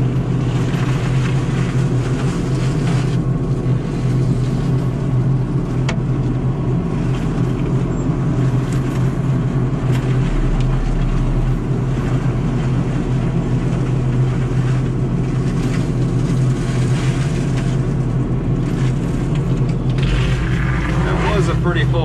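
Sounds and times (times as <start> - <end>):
heavy diesel machinery drone: 0.0 - 22.0
scattered crackles: 7.1 - 22.0.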